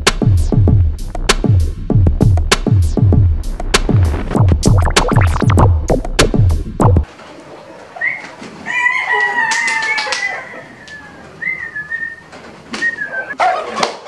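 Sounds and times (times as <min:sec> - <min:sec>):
rooster calling: 0:08.0 - 0:11.3.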